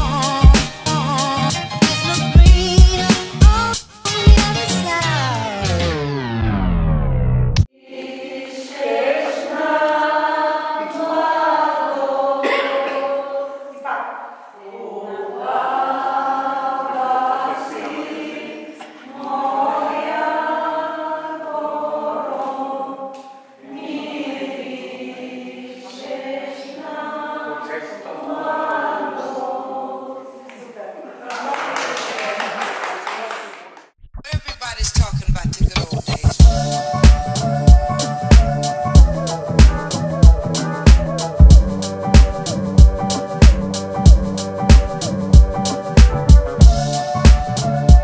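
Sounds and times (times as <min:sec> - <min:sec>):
choir singing: 0:07.8 - 0:30.7, 0:36.4 - 0:43.4, 0:44.0 - 0:48.0.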